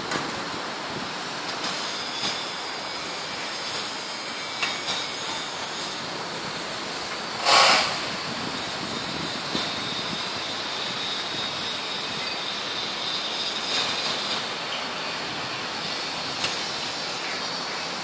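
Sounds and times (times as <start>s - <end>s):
distant city traffic hiss: 0.0s - 18.0s
short burst of noise: 7.3s - 8.3s.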